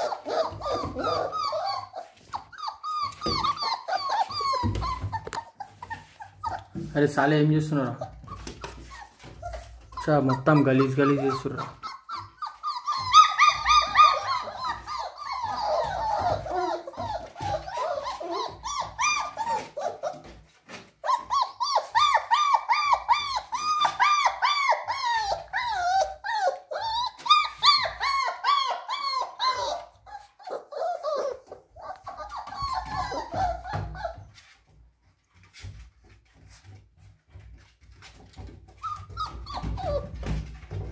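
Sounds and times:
puppies whining and yelping: 0.0s - 7.0s, 7.8s - 40.9s.

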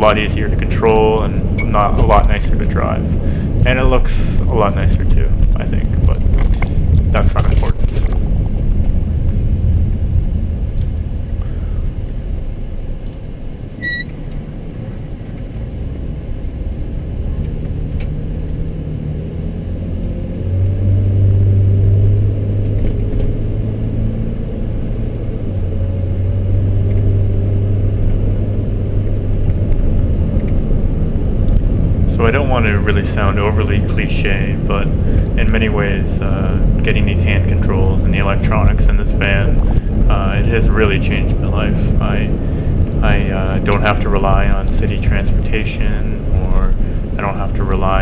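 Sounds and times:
engine and road rumble: 0.0s - 48.0s
short beep: 1.6s - 1.8s, 13.8s - 14.2s.

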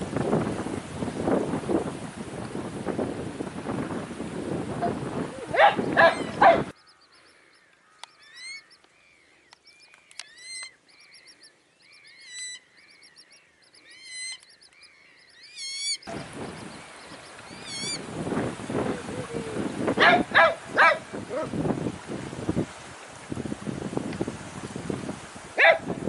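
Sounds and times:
wind buffeting microphone: 0.0s - 6.8s, 16.0s - 26.0s
coots calling: 5.4s - 18.0s.

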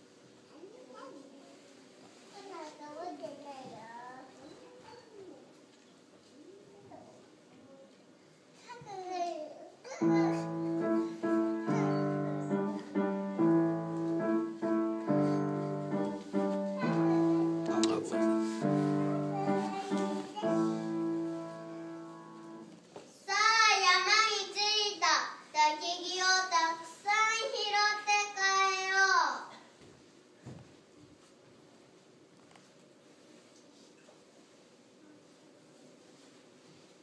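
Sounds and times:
piano playing slow chords: 10.0s - 22.8s
child singing: 18.9s - 21.1s, 23.3s - 29.4s.

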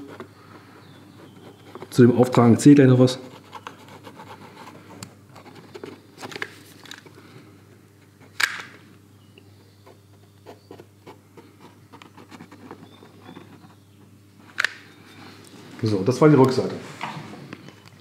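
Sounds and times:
plastic nozzle scraping plastic: 9.9s - 13.9s.

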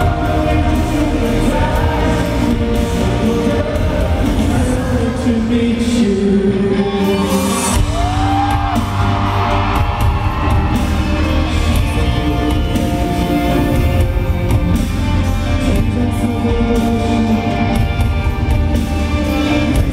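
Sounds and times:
live pop music with male singer: 0.0s - 19.9s.

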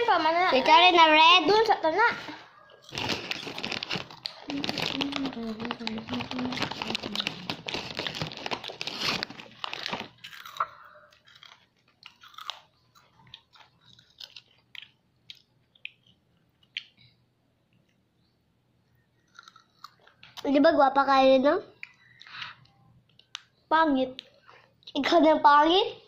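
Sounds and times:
crunchy snack being chewed: 2.7s - 17.0s, 19.2s - 20.4s.

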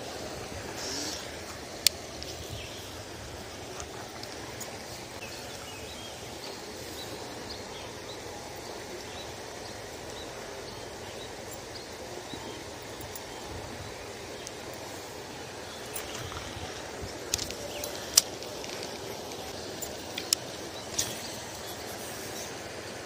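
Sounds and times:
outdoor background hiss: 0.0s - 23.0s
small ticks: 17.3s - 21.7s.

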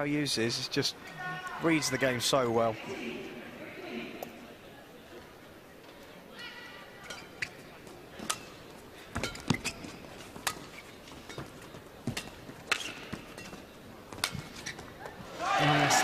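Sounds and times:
shoes squeaking on court floor: 7.0s - 15.4s
racket hitting shuttlecock: 8.2s - 11.4s, 12.1s - 14.8s.

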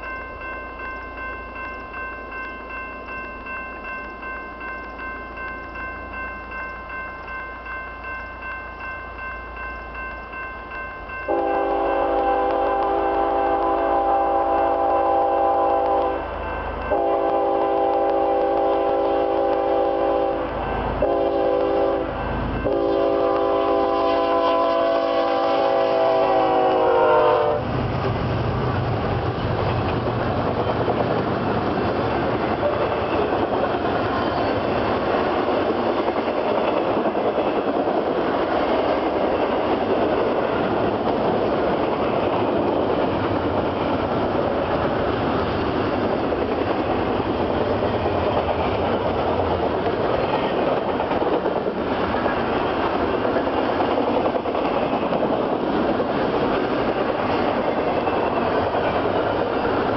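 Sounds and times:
locomotive horn blasts: 11.3s - 16.2s, 16.8s - 27.6s.

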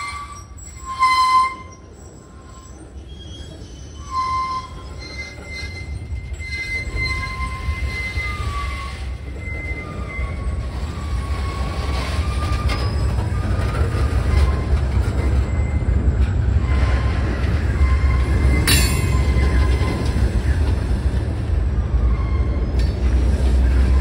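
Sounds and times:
high wheel squeals: 0.0s - 16.0s, 16.6s - 20.6s, 22.0s - 24.0s
train wheels rumbling on rails: 0.0s - 24.0s
sharp metallic screech: 17.8s - 19.9s.

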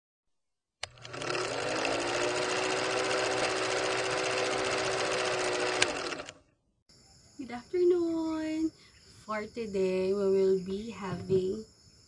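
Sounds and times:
film projector clattering: 0.8s - 6.4s.

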